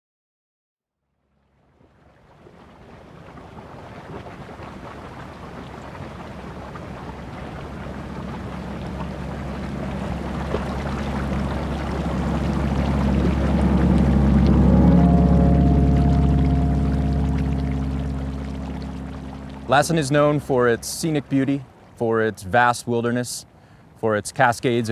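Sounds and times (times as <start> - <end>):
hot springs rushing and rumbling: 2.4 - 22.1.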